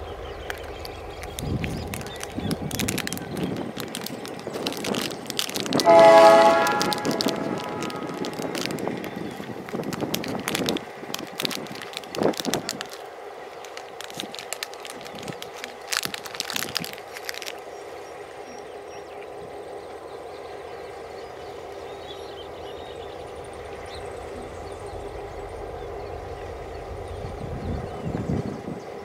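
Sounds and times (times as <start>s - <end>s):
diesel locomotive engine drone: 0.0s - 29.0s
sharp crackling clicks: 0.3s - 17.6s.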